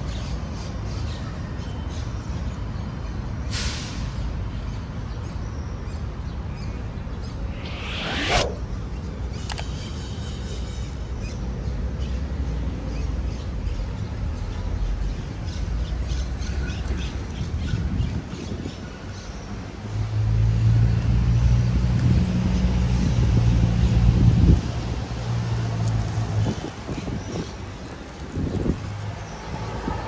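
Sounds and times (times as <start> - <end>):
sharp falling squawk: 7.5 - 8.6
street traffic rumble: 10.5 - 30.0.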